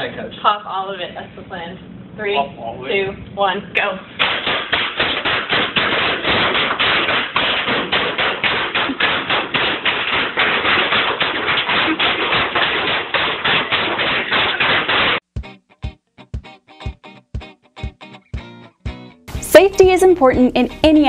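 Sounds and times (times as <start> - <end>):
bubble wrap popping: 4.2 - 15.2.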